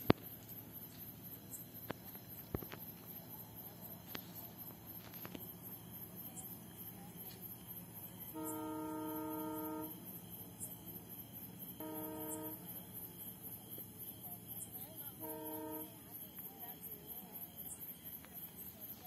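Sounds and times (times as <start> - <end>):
insects chirping: 0.0 - 19.0
distant train horn: 8.3 - 10.2, 11.8 - 12.9, 15.1 - 16.1.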